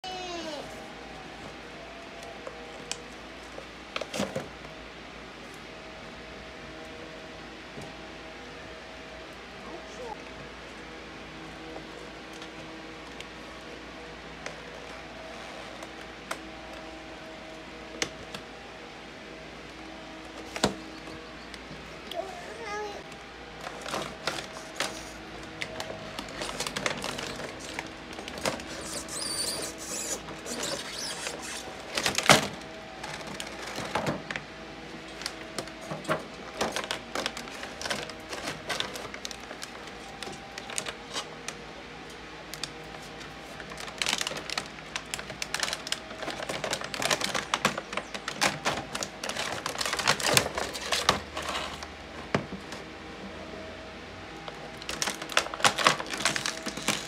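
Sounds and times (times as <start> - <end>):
plastic packaging crinkling: 23.6 - 34.3, 35.0 - 41.6, 42.5 - 52.0, 54.5 - 57.0.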